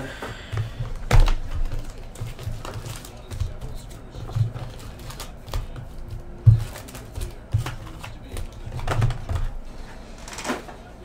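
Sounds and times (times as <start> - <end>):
foil packs crinkling: 1.0 - 5.7.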